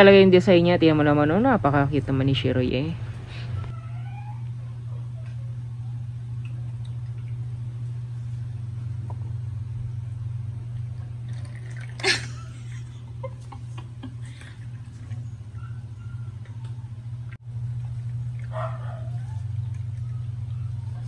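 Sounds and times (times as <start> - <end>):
water fountain pump hum: 0.0 - 21.0
water trickling: 11.3 - 12.4.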